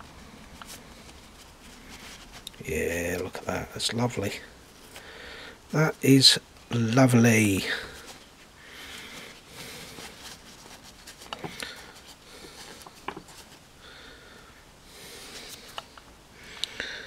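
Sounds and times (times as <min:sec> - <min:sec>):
paper towel rustling: 0:00.0 - 0:05.0, 0:07.0 - 0:13.6.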